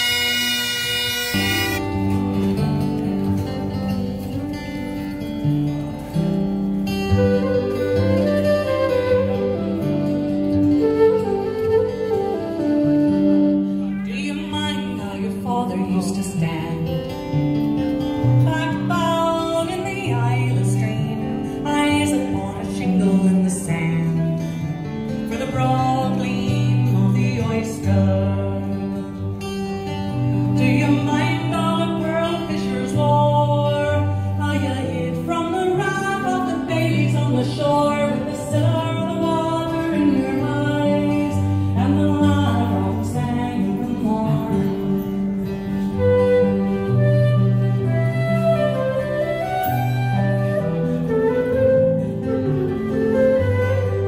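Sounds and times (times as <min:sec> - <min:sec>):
acoustic guitar strumming: 0:00.0 - 0:54.0
woman singing: 0:10.7 - 0:17.2, 0:18.3 - 0:29.3, 0:30.4 - 0:49.4.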